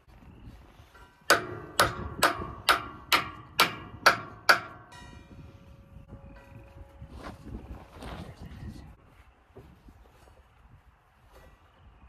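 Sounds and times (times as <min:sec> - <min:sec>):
sharp metallic clicks: 0:01.3 - 0:05.0.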